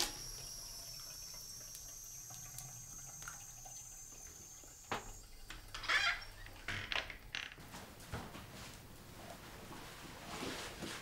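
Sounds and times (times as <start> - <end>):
water dripping: 0.0 - 7.3.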